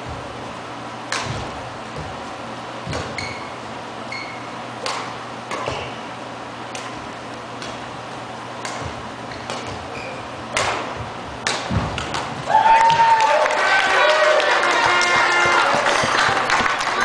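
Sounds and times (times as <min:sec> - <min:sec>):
rackets hitting shuttlecock: 0:01.0 - 0:02.2, 0:02.8 - 0:12.5.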